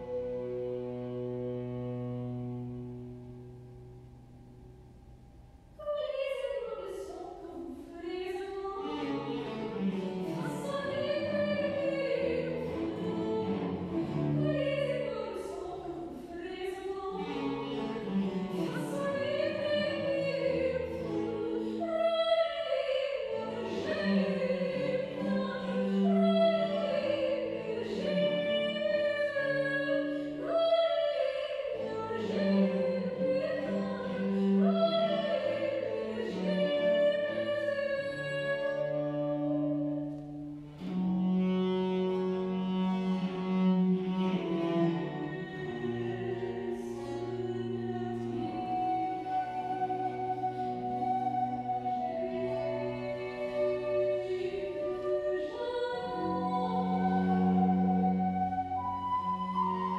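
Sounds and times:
cello and theorbo accompaniment: 0:00.0 - 0:04.6, 0:08.0 - 0:59.9
soprano singing an aria: 0:05.8 - 0:17.6, 0:18.5 - 0:39.8, 0:45.0 - 0:59.9.

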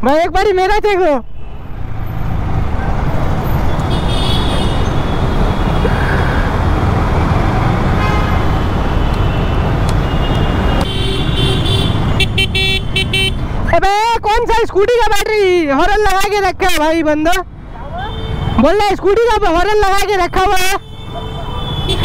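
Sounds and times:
motorcycle engine and road rumble: 0:01.7 - 0:13.7
vehicle horn: 0:03.9 - 0:05.8, 0:08.0 - 0:13.4, 0:20.8 - 0:22.0.

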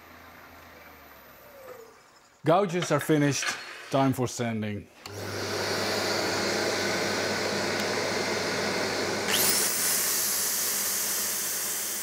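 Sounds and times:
dust extractor humming: 0:05.0 - 0:12.0
power sander whining: 0:05.0 - 0:12.0.

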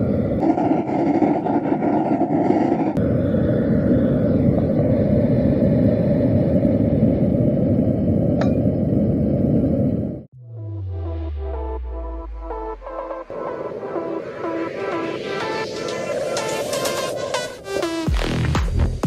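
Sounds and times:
propane burner flame rushing: 0:00.0 - 0:10.3.

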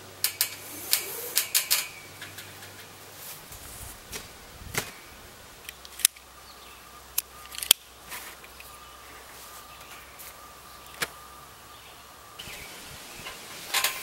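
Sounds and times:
cord pulled around metal springs: 0:00.2 - 0:02.8
sharp clicks and snaps: 0:05.6 - 0:06.2, 0:07.2 - 0:07.8.

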